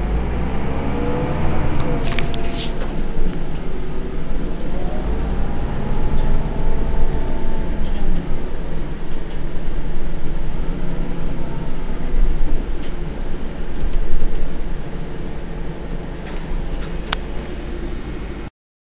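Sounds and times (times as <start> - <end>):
bus engine idling: 0.0 - 18.5
sharp click: 16.3 - 17.6.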